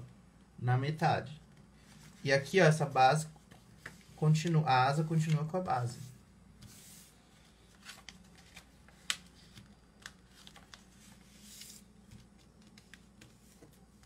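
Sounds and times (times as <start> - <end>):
paper crinkling and tapping: 7.7 - 14.0.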